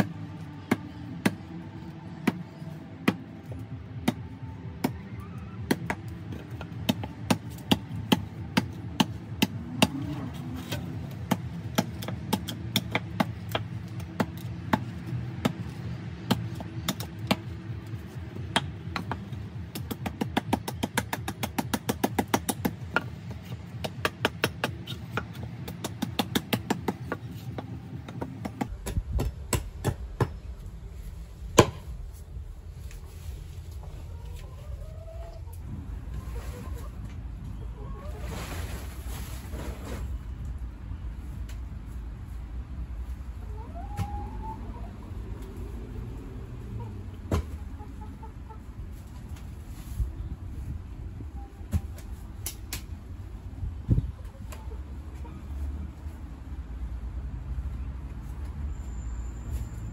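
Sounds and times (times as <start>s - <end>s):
hatchet chopping wood: 11.3s - 15.6s, 18.5s - 23.0s, 23.8s - 27.2s, 28.1s - 30.4s, 31.6s - 31.9s.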